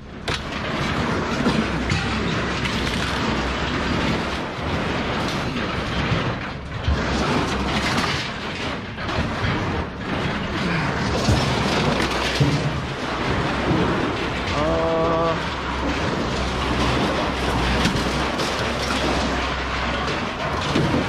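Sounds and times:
bicycles rattling against metal mesh: 0.0 - 21.0.

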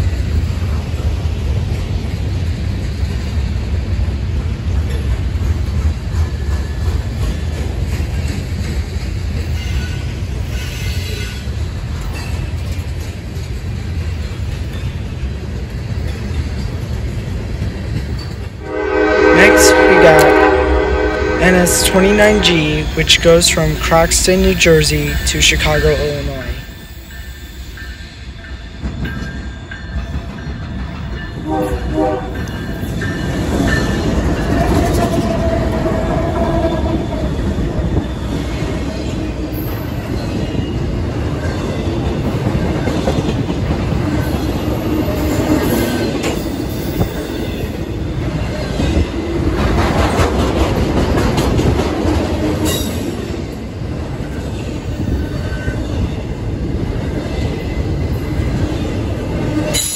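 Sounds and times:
freight train rumbling past: 0.0 - 59.9
train horn: 18.6 - 23.0, 31.4 - 32.6
rail clatter: 48.4 - 56.1.

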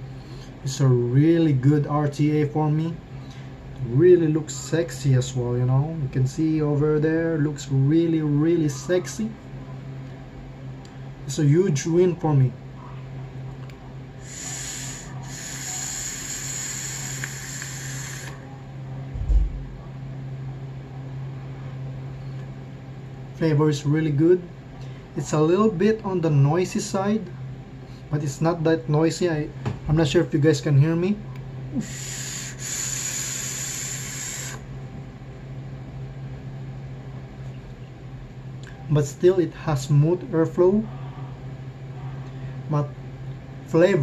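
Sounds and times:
hissing draw of air: 14.2 - 18.4, 31.8 - 34.6.

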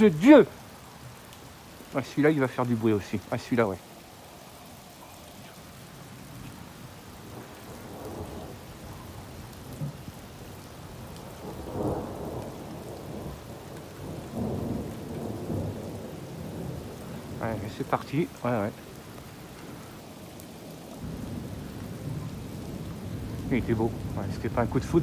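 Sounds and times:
steady rain: 0.0 - 25.0
thunder rolling: 7.2 - 18.8, 21.0 - 25.0.

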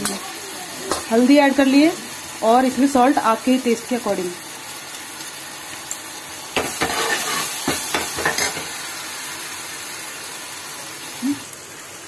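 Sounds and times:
masala sizzling in a pan: 0.0 - 12.0
ladle scraping and knocking in pan: 6.6 - 8.7.

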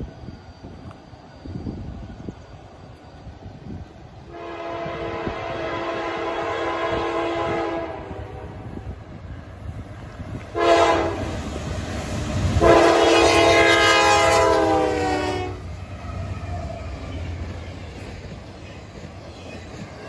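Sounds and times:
freight cars rumbling over crossing: 4.2 - 20.0
locomotive air horn blasts: 4.3 - 8.8, 10.5 - 11.3, 12.6 - 15.7.

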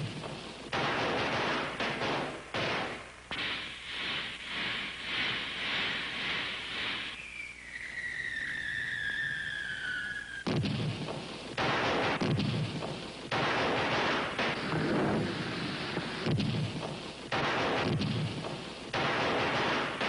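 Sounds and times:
firework explosions: 0.0 - 20.0
firework whistle sliding down: 5.2 - 10.5.

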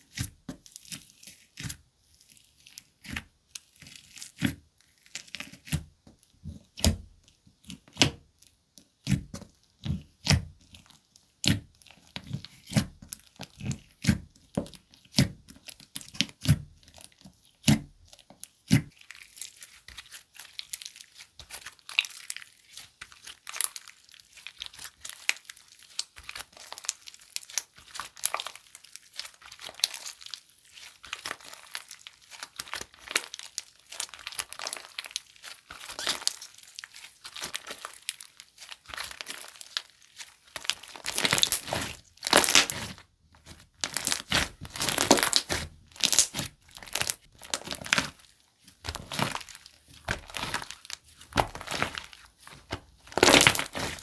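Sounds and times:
slime crackling when stretched: 18.9 - 54.0
slime popping: 43.8 - 48.2, 48.9 - 54.0.

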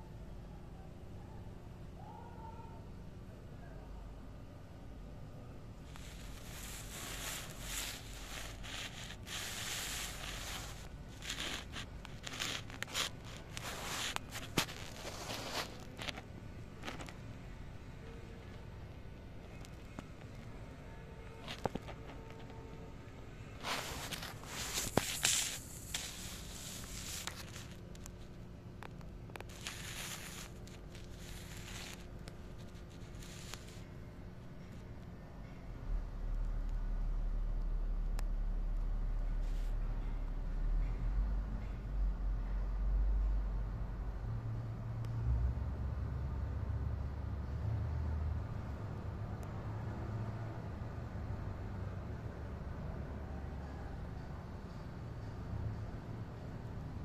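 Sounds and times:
rustling and scraping: 5.8 - 17.4, 21.2 - 34.0, 39.4 - 40.2.

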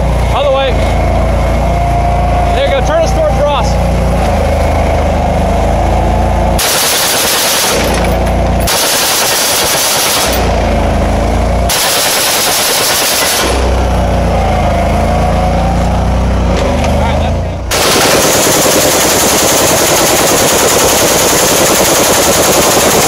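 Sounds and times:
vehicle engine running: 0.0 - 23.0
machine gun automatic fire: 6.6 - 10.6, 11.7 - 13.8, 17.7 - 23.0.

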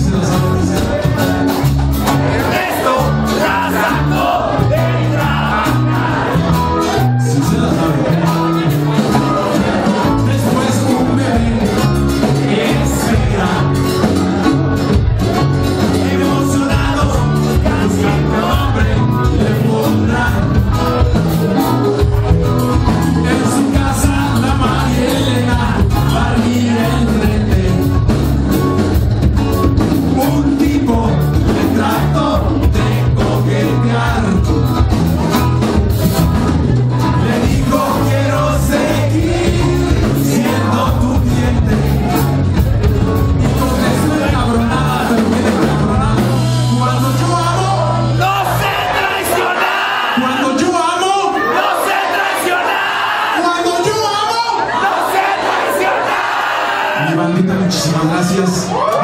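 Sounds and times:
steady drum beat: 0.0 - 47.6
electric guitars: 0.0 - 50.4
live band playing loud music: 0.0 - 59.0
person singing: 15.7 - 21.9, 23.1 - 28.4, 30.1 - 35.0, 37.0 - 42.4, 43.2 - 49.5.

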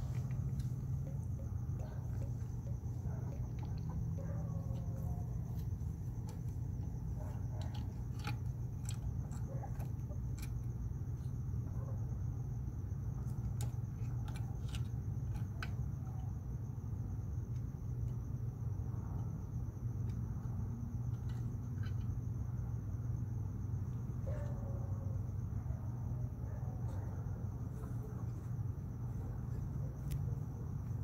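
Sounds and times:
claws scratching on wood: 0.0 - 10.9
steady low hum: 0.0 - 31.0.

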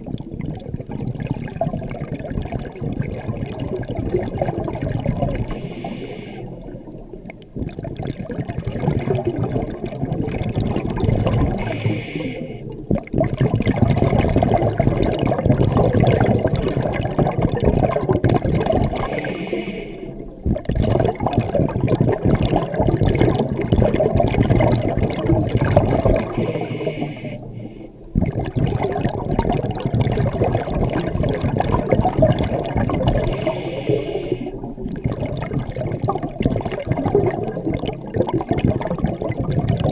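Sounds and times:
bubbles gurgling underwater: 0.0 - 39.9
regulator inhalation hiss: 5.5 - 6.6, 11.6 - 12.7, 19.0 - 20.2, 26.4 - 27.8, 33.3 - 34.7.

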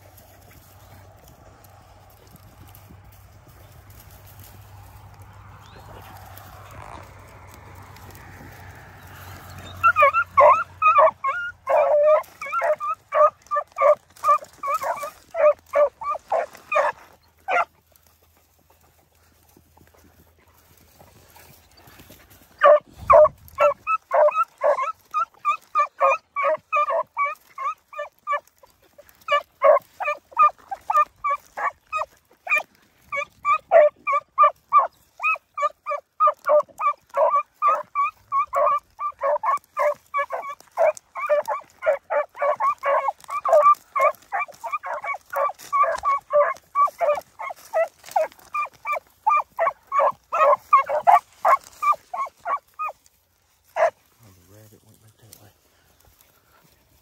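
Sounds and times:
hounds barking: 0.0 - 54.1.

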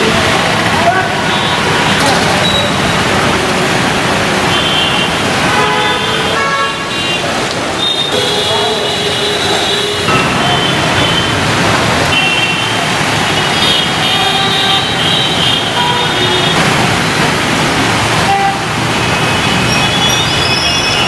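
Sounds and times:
traffic on a wet road: 0.0 - 21.0
car horn toots: 4.5 - 11.5, 12.1 - 16.7, 18.2 - 21.0.

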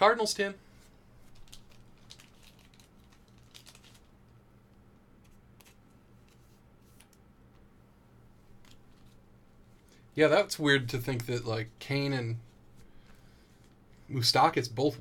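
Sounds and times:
low steady hum: 0.0 - 15.0
trading cards rustling: 0.8 - 4.4.

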